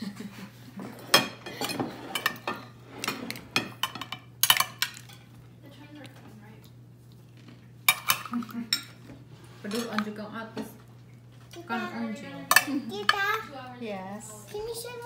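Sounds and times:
plates and cutlery clinking: 0.8s - 5.4s, 7.4s - 11.5s, 12.4s - 13.4s.

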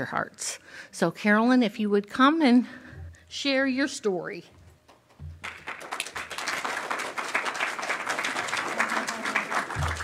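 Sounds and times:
audience applauding: 5.4s - 10.0s.

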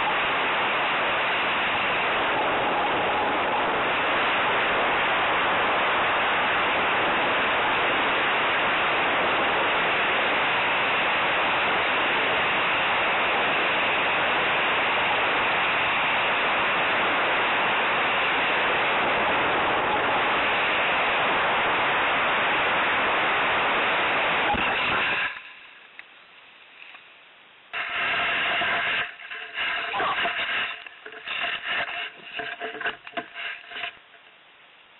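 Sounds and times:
rushing wind noise: 0.0s - 11.2s, 23.4s - 25.5s, 27.8s - 34.0s
handling noise on microphone: 27.8s - 34.3s.

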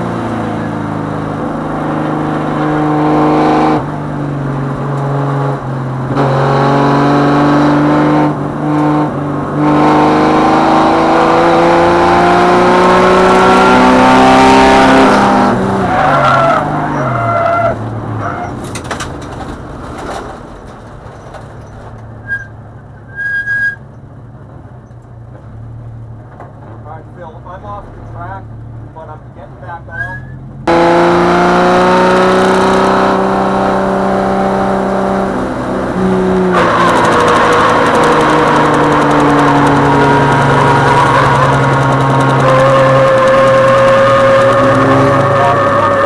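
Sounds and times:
race car engine revving: 0.0s - 17.8s, 30.2s - 46.0s
tyres squealing: 21.6s - 23.9s, 29.9s - 30.4s.

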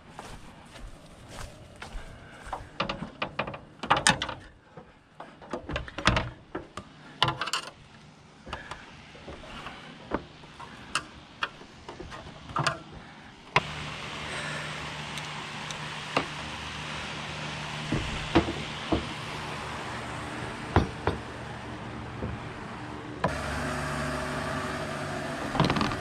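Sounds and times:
steps on metal ladder treads: 0.0s - 7.8s.

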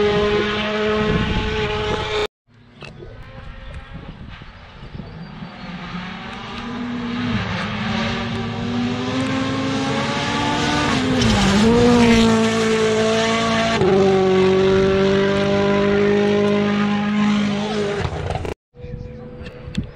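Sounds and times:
rally car engine passing: 3.2s - 18.4s.

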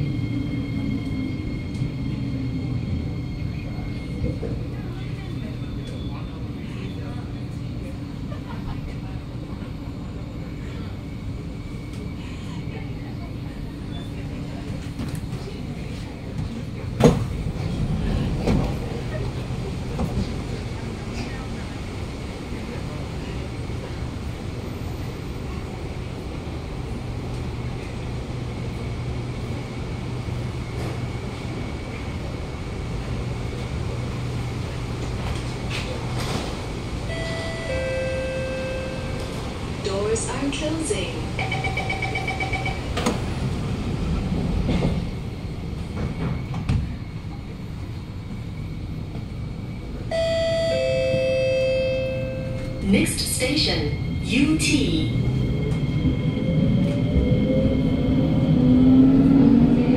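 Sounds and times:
train equipment hum and rumble: 0.0s - 59.9s
train doors shutting with a thud: 16.3s - 20.4s, 35.0s - 39.7s, 41.4s - 43.6s, 44.2s - 47.4s.

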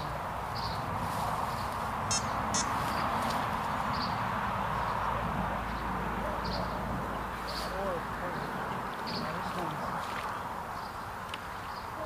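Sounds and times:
steady outdoor hiss: 0.0s - 12.0s
high chirps: 2.1s - 3.0s
sharp calls: 2.1s - 3.2s.

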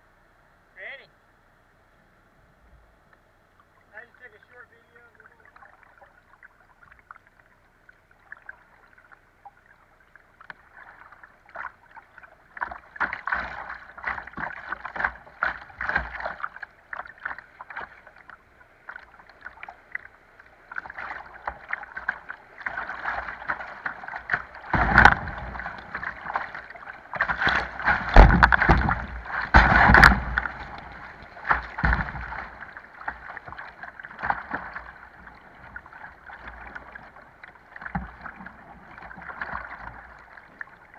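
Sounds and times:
paddle strokes: 8.2s - 40.9s
water slapping against bow: 10.4s - 40.9s
rushing splashing river water: 10.6s - 40.9s.

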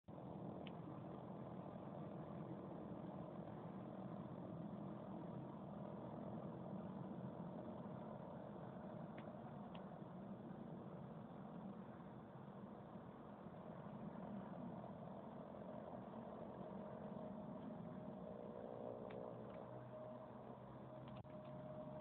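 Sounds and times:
turboprop engines droning: 0.1s - 22.0s.

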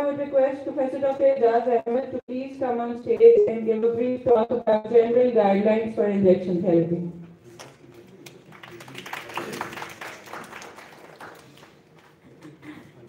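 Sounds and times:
audience clapping: 8.0s - 12.9s.

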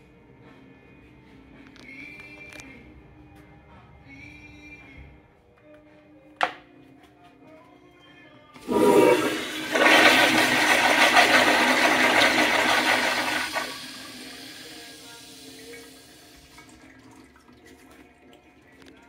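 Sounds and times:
toilet flushing: 8.6s - 19.0s.

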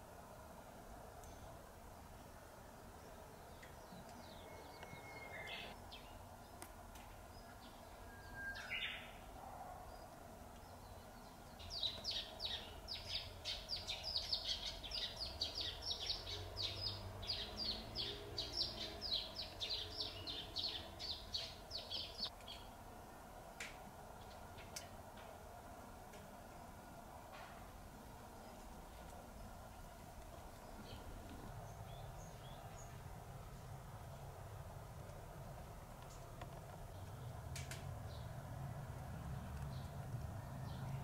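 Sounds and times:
bird singing whistled song: 4.2s - 6.2s, 8.0s - 9.2s.

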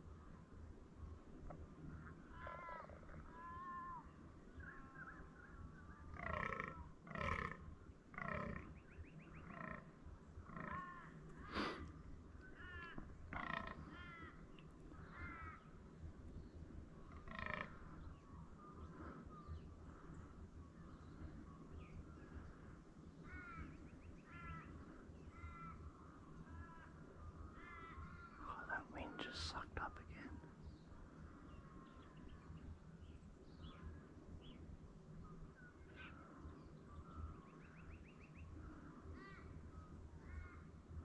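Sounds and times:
small birds chirping: 1.4s - 40.7s
crow cawing: 2.3s - 4.1s, 6.1s - 8.7s, 10.5s - 11.8s, 12.4s - 15.7s, 17.1s - 18.0s, 22.3s - 28.6s, 38.8s - 40.8s.

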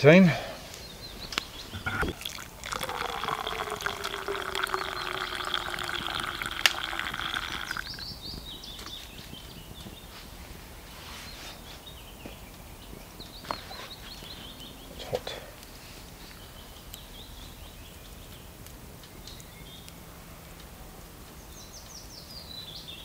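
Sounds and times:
birds calling quietly: 0.0s - 23.0s
hot water pouring into cup: 2.0s - 8.1s.

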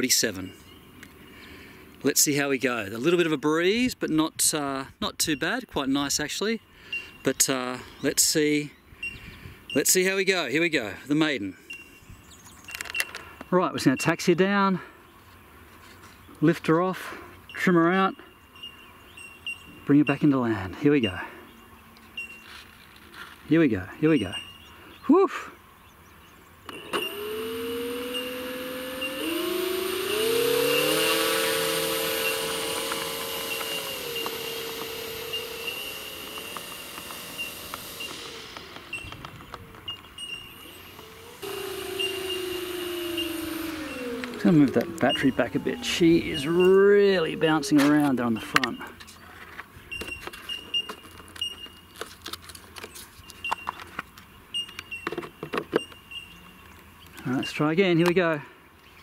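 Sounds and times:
electric motor and propeller whine: 26.7s - 48.7s.

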